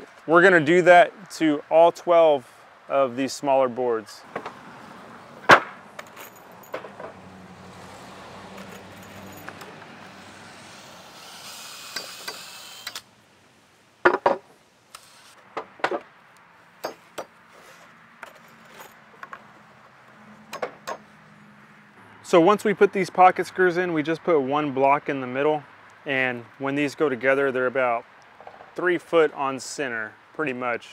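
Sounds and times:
wooden boards knocking: 5.5 - 5.8, 14.0 - 14.5
loose screws jingling in box: 18.2 - 19.0.

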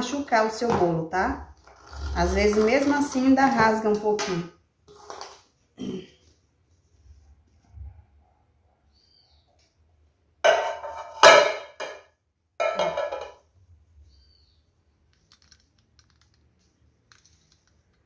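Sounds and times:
cake pan clanking on countertop: 10.5 - 13.4.

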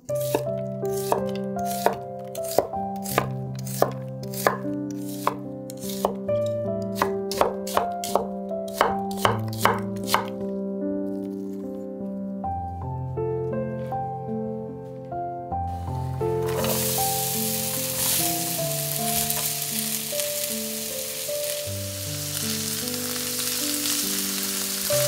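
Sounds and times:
knife chopping vegetables: 0.0 - 10.5
soft background music: 0.0 - 25.0.

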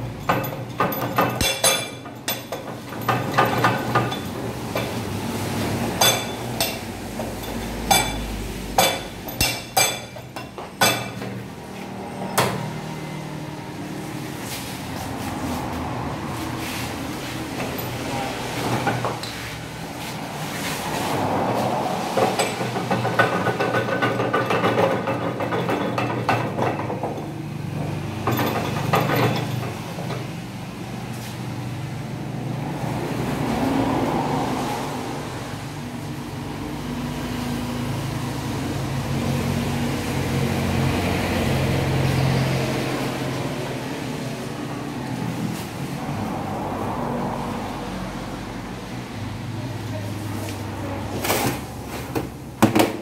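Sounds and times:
metal tools clinking and rattling: 0.0 - 5.0, 6.0 - 11.4, 28.2 - 29.9.

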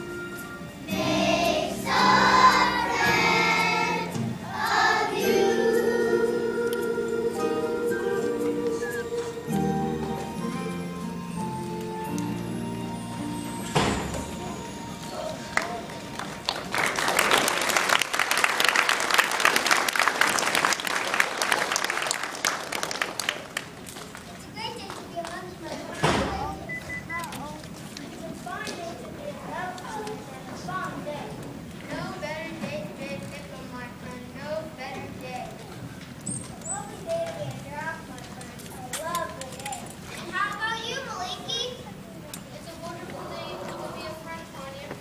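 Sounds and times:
musical accompaniment: 0.0 - 16.9
children's choir singing: 0.7 - 11.0
audience applauding: 15.4 - 25.3.

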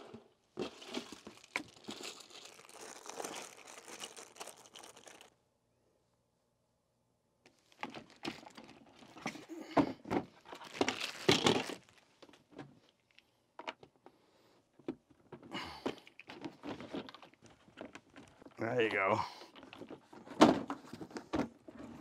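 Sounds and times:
rustling: 0.0 - 5.3, 10.3 - 13.2
plastic knocks and clatters: 7.8 - 12.8, 14.8 - 18.6, 19.5 - 22.0.

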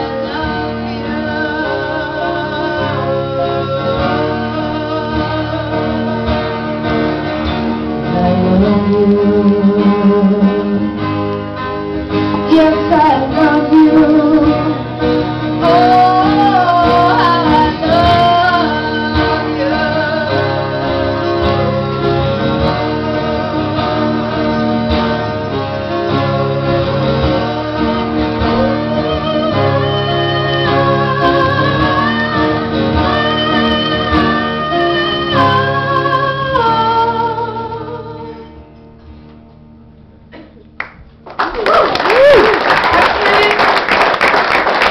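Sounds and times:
woman singing: 0.0 - 6.3, 8.0 - 11.0, 12.5 - 14.9, 15.6 - 22.5, 28.4 - 38.6
acoustic guitar strumming: 0.0 - 37.2.

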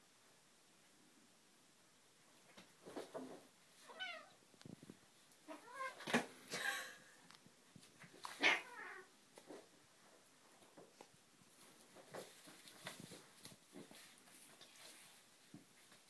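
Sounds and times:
cats scuffling: 2.4 - 6.5, 7.7 - 16.0
cats meowing and yowling: 5.5 - 6.0, 8.4 - 9.1.

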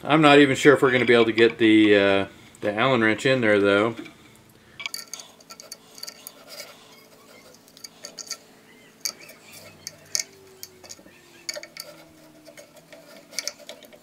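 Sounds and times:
metal key clicking and scraping: 4.8 - 14.0.

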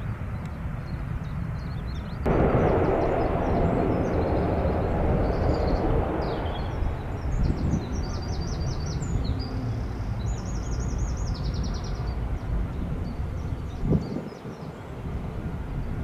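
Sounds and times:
low rumble: 2.3 - 10.7.

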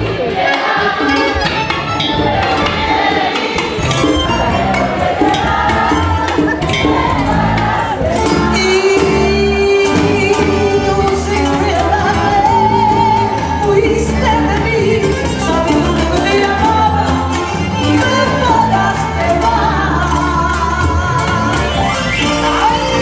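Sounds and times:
hand drums: 0.0 - 21.5
bass line: 0.0 - 23.0
woman singing: 5.3 - 23.0.

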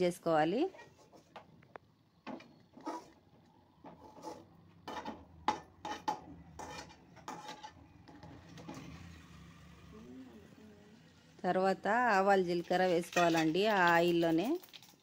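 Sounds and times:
spoon scraping metal pan: 0.6 - 1.4, 2.7 - 3.2, 3.8 - 9.2, 12.4 - 13.9.

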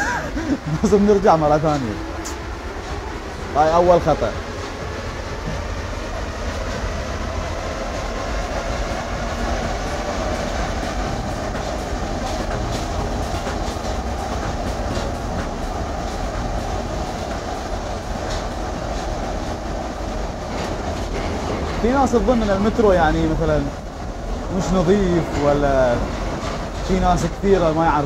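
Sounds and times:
train wheels rumbling on rails: 0.0 - 28.0
clicks and clacks: 8.5 - 22.8, 24.6 - 28.0.

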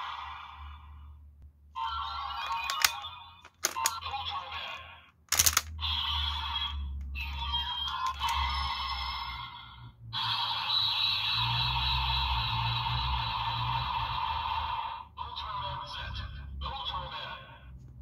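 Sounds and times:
toy speaker music and effects: 1.8 - 17.4
sharp plastic clicks: 2.5 - 4.0, 5.3 - 5.8, 7.9 - 8.4.

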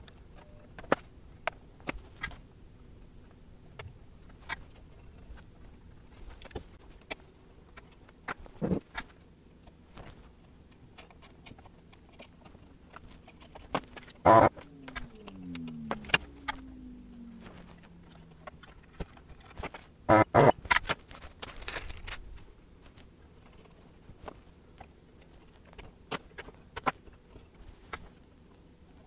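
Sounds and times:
faint tone sliding down: 14.3 - 20.5.

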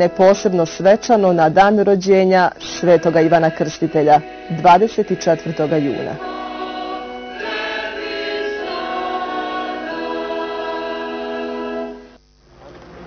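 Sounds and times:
choir singing sacred music: 2.5 - 12.2.

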